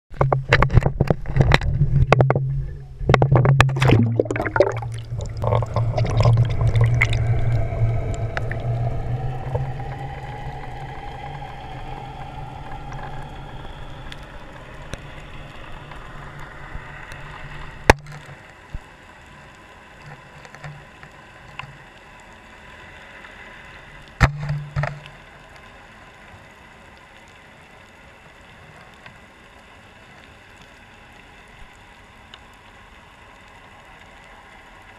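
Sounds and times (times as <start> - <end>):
low hum: 0.1 - 27.9
muffled underwater rush: 0.1 - 34.9
splash into water: 3.2 - 7.2.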